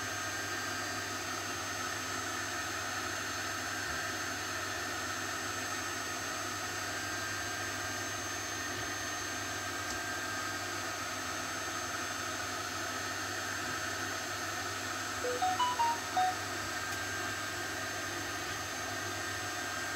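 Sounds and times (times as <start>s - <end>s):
faint high whine: 15.2s - 16.4s.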